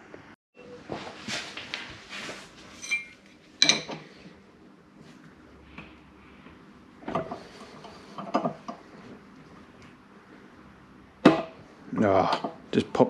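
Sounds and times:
metal tools clanking: 2.7s - 4.1s.

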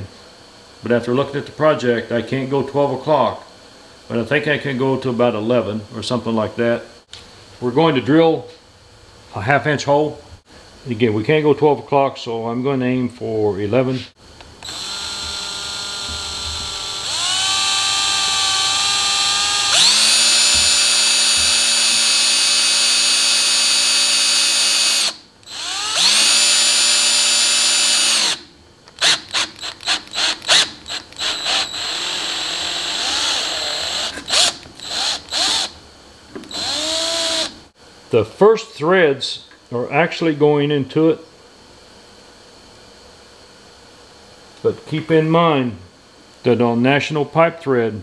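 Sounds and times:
cordless drill boring plastic pipe: 14.6s - 35.8s, 36.4s - 37.6s.

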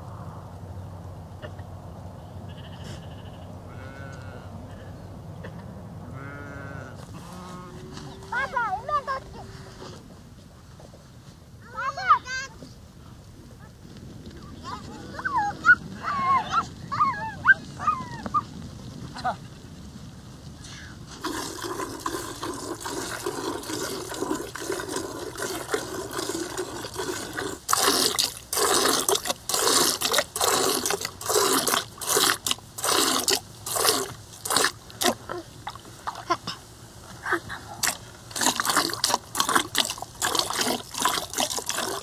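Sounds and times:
milk squirting into a pail: 21.2s - 36.2s, 37.8s - 42.0s.

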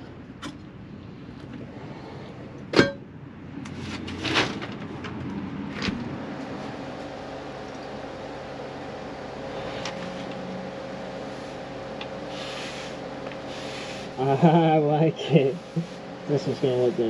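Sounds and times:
steady hum: 0.0s - 17.0s
sharp metal clank ringing: 2.8s - 3.0s.

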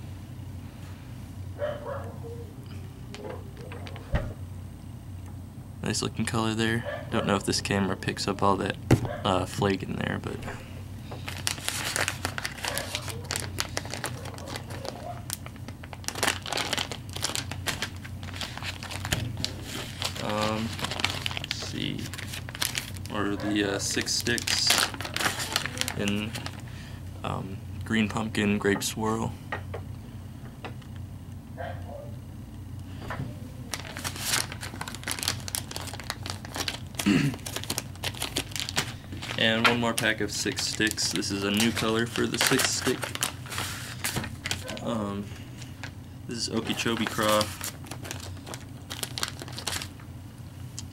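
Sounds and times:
plastic bag crinkling: 9.1s - 26.7s, 33.6s - 50.0s.

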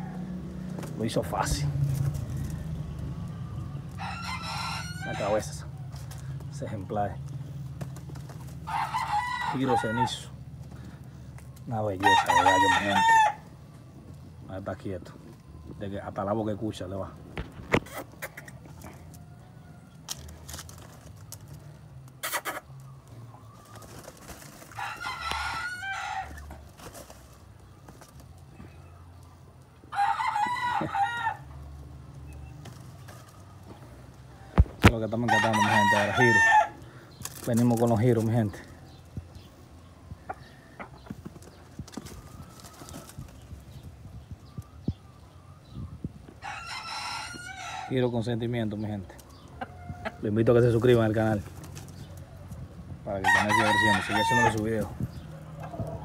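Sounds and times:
rooster crowing: 0.0s - 0.5s, 3.9s - 6.0s, 8.6s - 10.4s, 11.9s - 13.5s, 24.7s - 26.5s, 29.9s - 31.6s, 35.3s - 37.0s, 46.4s - 48.0s, 53.2s - 54.6s
footsteps on gritty concrete: 4.0s - 15.8s.

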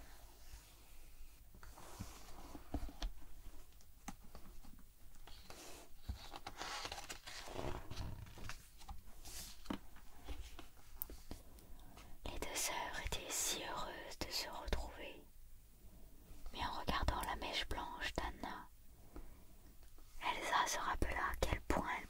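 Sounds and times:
page turning rustle: 4.0s - 11.3s.

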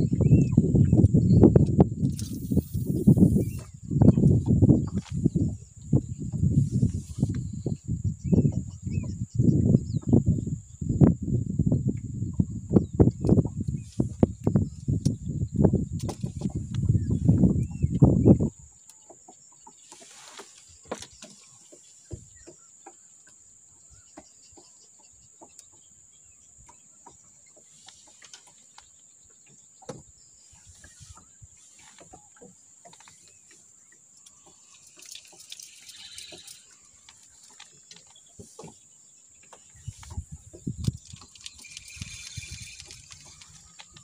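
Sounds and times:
high insect buzz: 2.1s - 3.7s, 34.8s - 37.0s, 41.5s - 43.4s.

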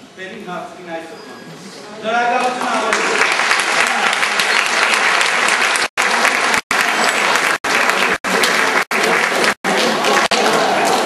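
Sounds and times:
audience applauding: 2.4s - 11.0s.

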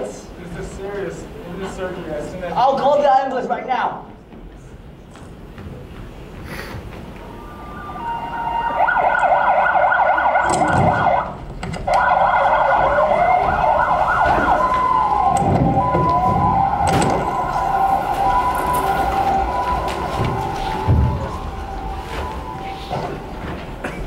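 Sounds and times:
ambulance siren: 7.2s - 24.0s
low thumps: 10.4s - 24.0s.

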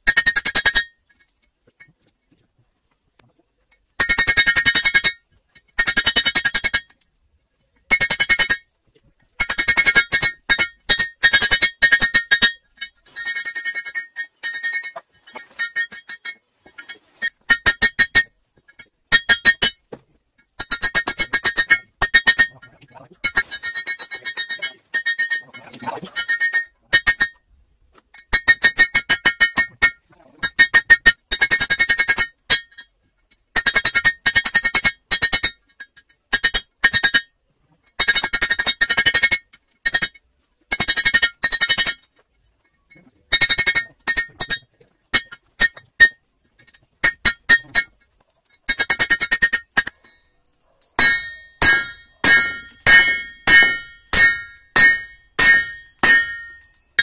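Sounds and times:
hammer ringing on anvil: 51.0s - 56.8s.

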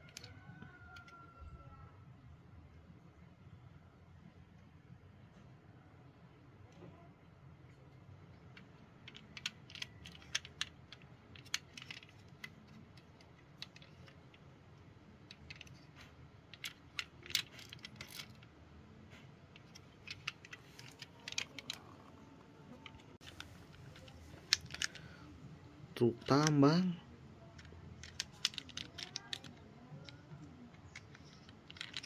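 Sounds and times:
toy parts clicking and clinking: 0.0s - 0.3s, 8.5s - 14.5s, 15.2s - 18.5s, 19.5s - 25.1s, 26.0s - 32.0s
faint low hum: 0.0s - 32.0s.

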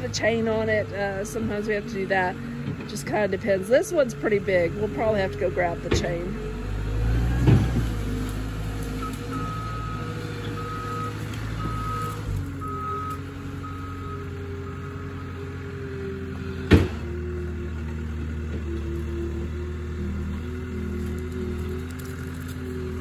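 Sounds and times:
loader engine running: 0.0s - 23.0s
backup alarm beeping: 9.0s - 14.8s.

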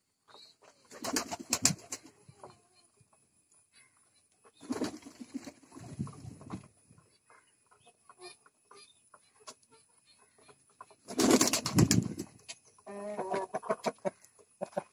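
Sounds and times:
wings flapping: 0.9s - 2.2s, 4.6s - 6.6s, 11.0s - 12.4s.

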